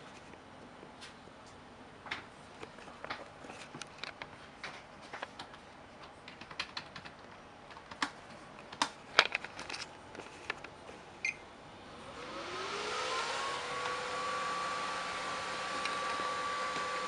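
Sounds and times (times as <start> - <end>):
computer fan whine and air rush: 0.0 - 17.0
sharp clicks and knocks: 1.0 - 10.8.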